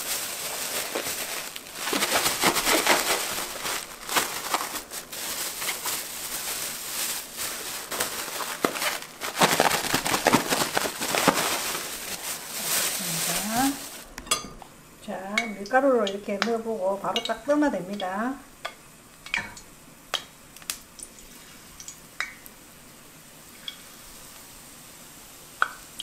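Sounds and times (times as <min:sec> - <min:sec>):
plastic bag crinkling: 0:00.0 - 0:14.1.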